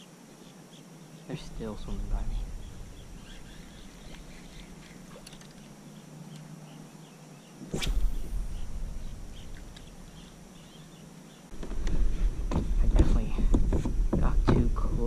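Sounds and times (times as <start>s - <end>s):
faint insect or bird chirping: 0.0s - 11.6s
fishing line hiss: 1.3s - 6.2s, 7.6s - 12.2s
low rumble: 1.4s - 5.3s, 7.7s - 14.5s
fishing rod swish: 7.6s - 10.2s.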